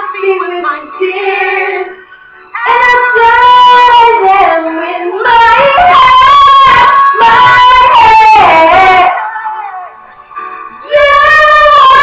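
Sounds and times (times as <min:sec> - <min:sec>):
recorded song playing: 0:00.0 - 0:12.0
woman singing gospel notes: 0:10.8 - 0:12.0.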